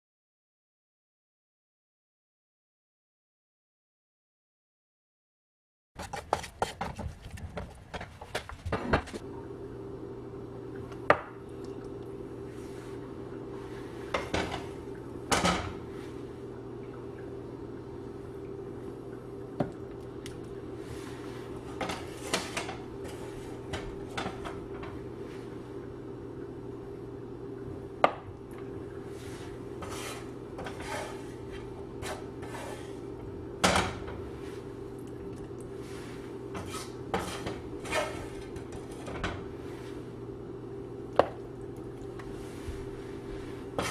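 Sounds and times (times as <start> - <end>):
low hum: 8.6 - 43.9.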